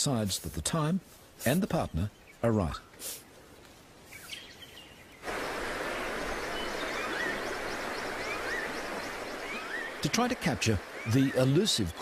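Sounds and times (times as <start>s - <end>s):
faint bird chirps: 4.1s - 12.0s
rushing river water: 5.2s - 12.0s
bird whistling: 6.5s - 10.1s.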